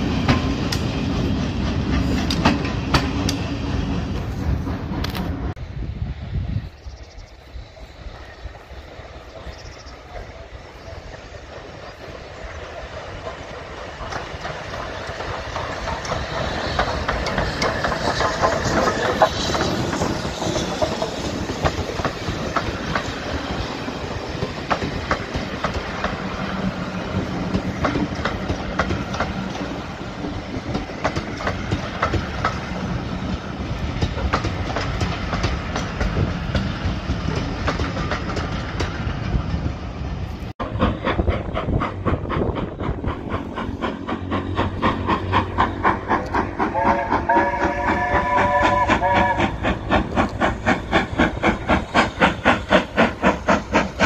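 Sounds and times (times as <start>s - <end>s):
steam locomotive passing: 0.0s - 54.0s
wheels clicking over rail joints: 11.1s - 39.7s, 40.4s - 54.0s.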